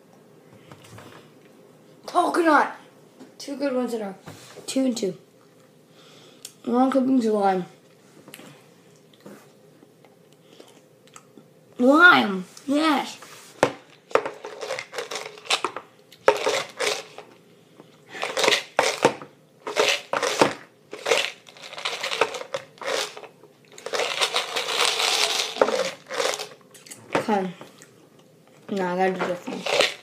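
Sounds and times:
crinkling handling noise: 13.2 - 17.4, 18.1 - 27.0, 28.5 - 30.0.

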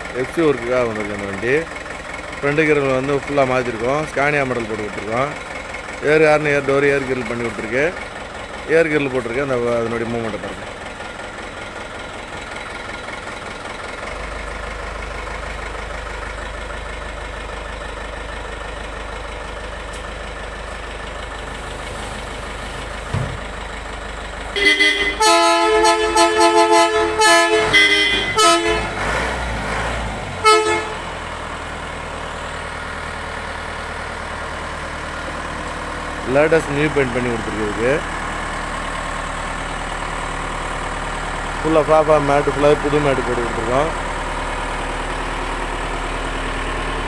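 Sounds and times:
diesel engine idling: 0.0 - 47.0
multi-tone musical horn: 24.6 - 29.0, 30.4 - 31.1.

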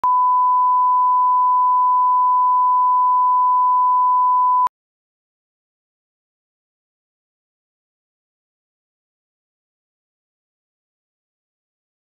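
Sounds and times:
steady line-up tone beep: 0.0 - 4.7.

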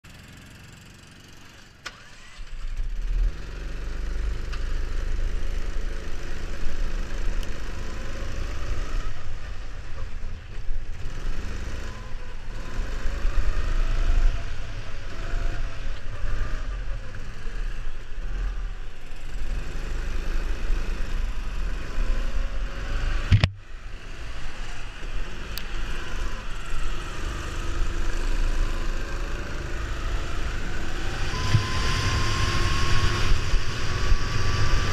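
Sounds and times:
go-kart engine revving: 0.1 - 34.9
wind rumble on microphone: 31.4 - 34.9.

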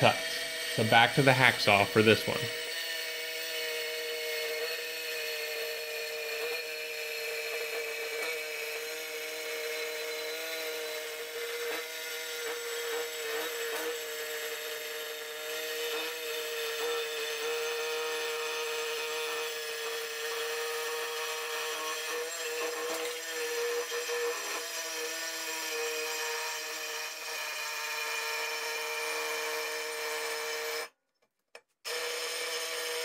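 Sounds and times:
hacksaw cutting metal: 0.0 - 30.9.

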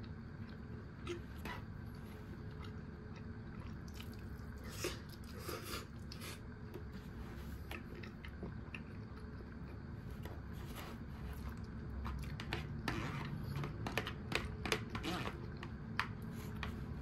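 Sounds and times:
close-up chewing: 0.0 - 10.5
low room hum: 0.0 - 17.0.

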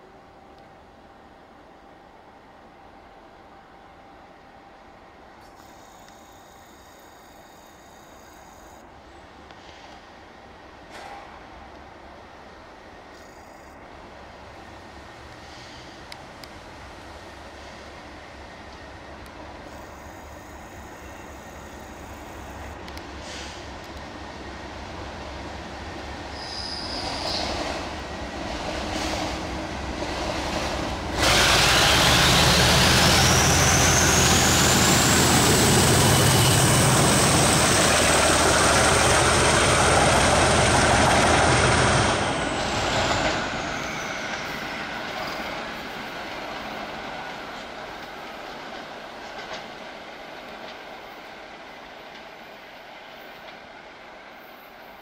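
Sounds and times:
diesel locomotive passing: 13.8 - 55.0
high engine whine: 31.0 - 45.3.

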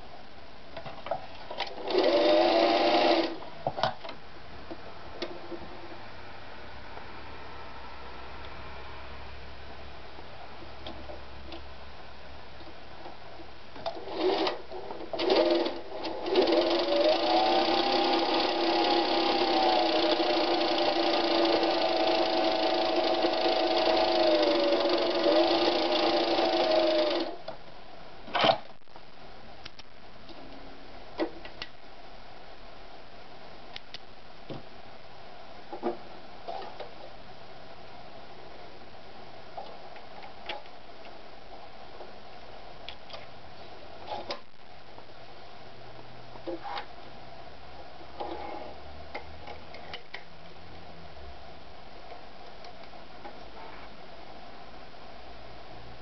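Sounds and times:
sewing machine motor running: 1.8 - 3.4, 15.2 - 27.4.

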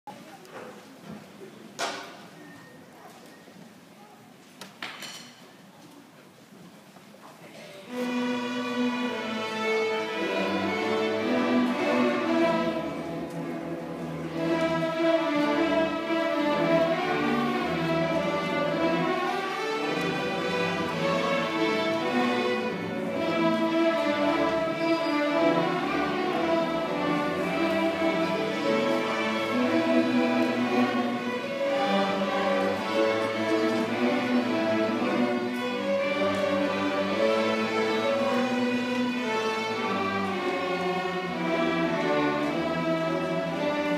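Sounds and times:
string orchestra bowed notes: 7.9 - 43.9.

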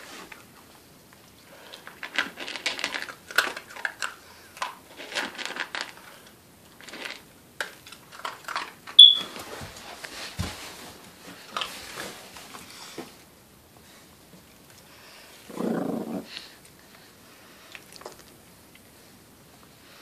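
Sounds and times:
dog crunching kibble: 1.6 - 9.0.

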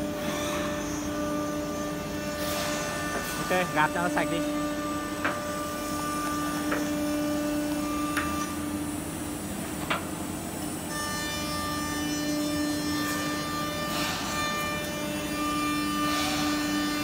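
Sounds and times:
router machine humming: 0.0 - 9.4.

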